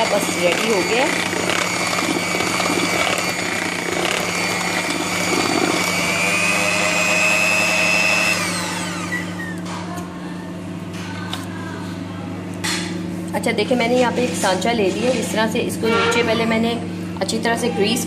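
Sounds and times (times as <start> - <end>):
electric hand mixer whining: 0.0 - 9.6.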